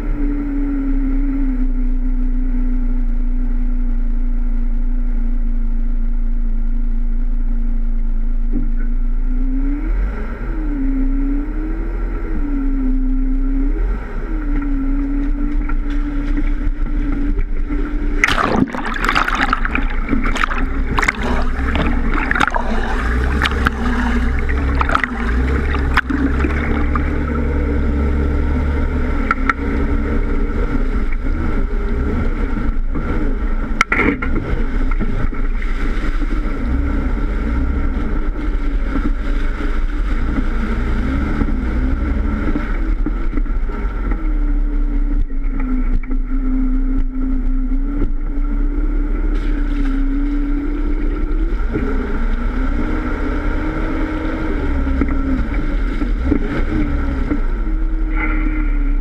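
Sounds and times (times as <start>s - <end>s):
engine rumbling at low revs: 0.0s - 59.0s.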